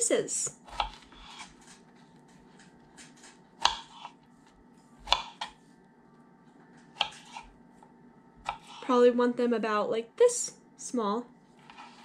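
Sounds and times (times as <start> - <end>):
knife tapping cutting board: 3.0 - 4.1.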